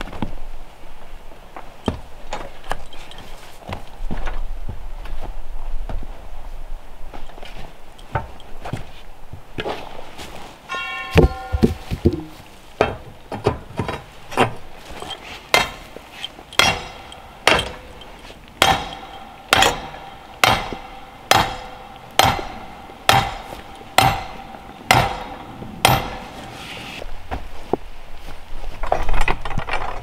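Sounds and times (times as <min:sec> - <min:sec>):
sledgehammer striking metal stake: 0:10.7 - 0:27.0.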